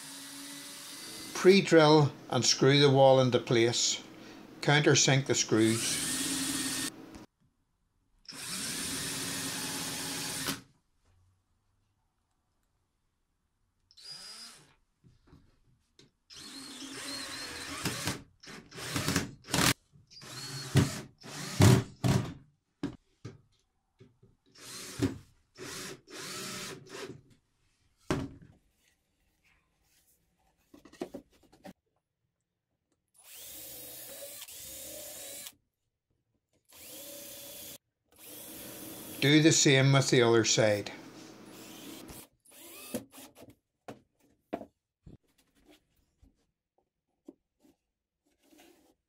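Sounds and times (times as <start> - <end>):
cordless drill driving screws: 0.0 - 1.4, 5.6 - 7.0, 8.3 - 10.6, 16.3 - 22.2, 24.6 - 27.2, 33.2 - 35.6, 36.7 - 39.5, 41.4 - 43.4.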